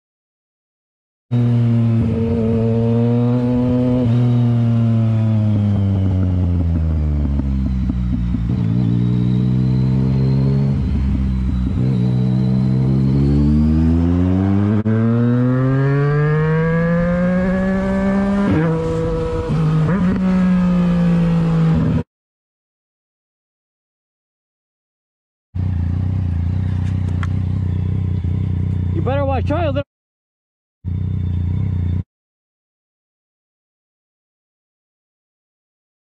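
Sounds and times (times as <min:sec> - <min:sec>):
motorcycle engine: 0:01.3 - 0:22.0, 0:25.6 - 0:29.8, 0:30.8 - 0:32.0.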